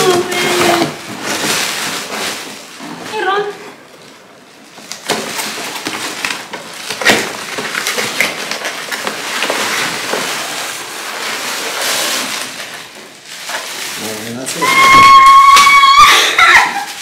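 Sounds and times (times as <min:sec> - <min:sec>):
cardboard rustling: 0:00.0 - 0:15.6
bubble wrap crinkling: 0:00.0 - 0:17.0.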